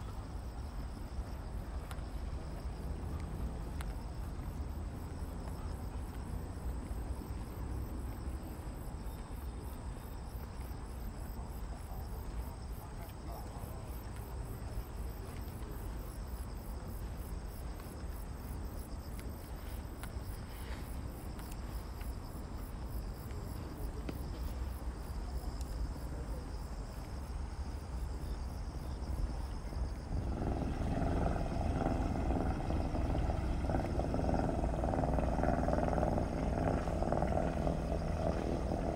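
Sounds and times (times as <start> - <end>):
insects chirping: 0.0 - 38.9
low outdoor rumble: 0.0 - 38.9
engine drone: 29.9 - 38.9.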